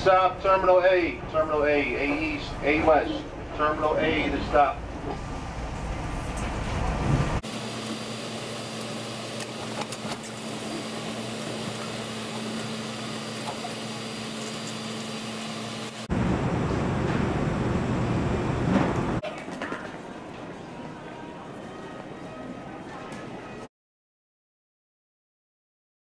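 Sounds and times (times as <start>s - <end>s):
train ventilation hum: 0.0s - 19.2s.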